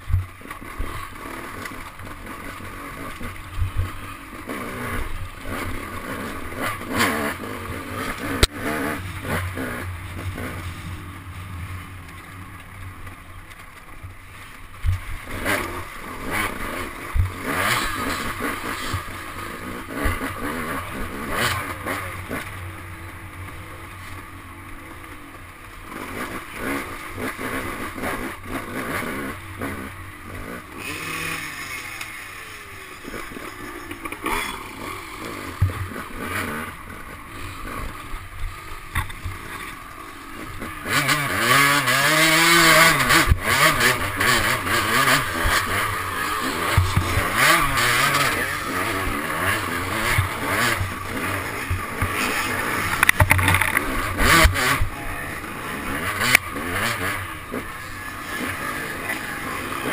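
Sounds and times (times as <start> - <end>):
dirt bike engine revving: 0.0 - 59.9
bike knocks and rattles: 51.6 - 54.9.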